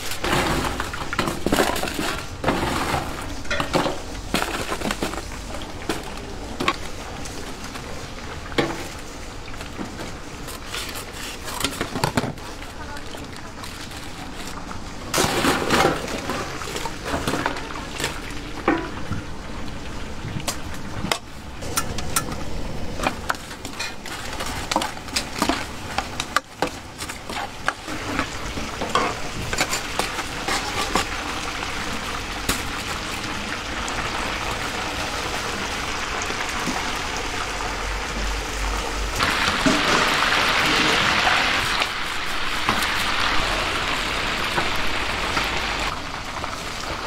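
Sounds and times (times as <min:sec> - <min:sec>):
food sizzling in hot oil: 0:27.5 - 0:47.0.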